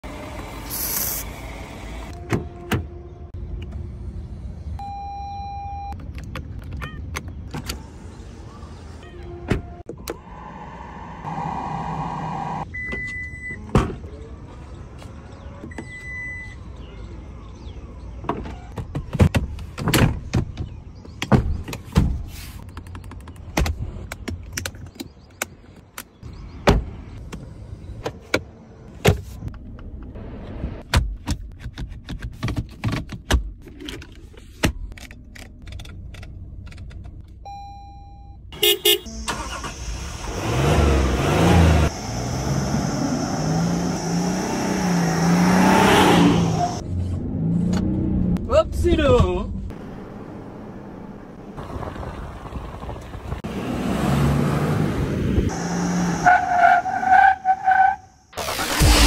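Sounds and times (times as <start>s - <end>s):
car engine starting and running: 38.6s - 59.0s.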